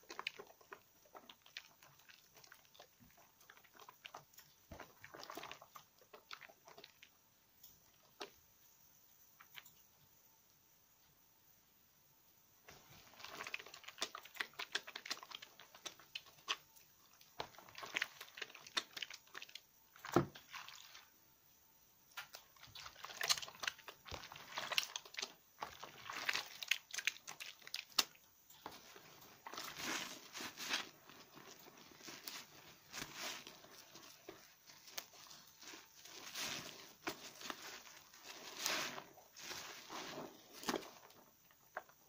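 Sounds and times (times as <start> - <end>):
sponge rubbing soap: 0.0 - 7.1, 22.3 - 42.0
soap squishing in wet hands: 0.0 - 7.2, 12.7 - 21.2, 22.2 - 42.0.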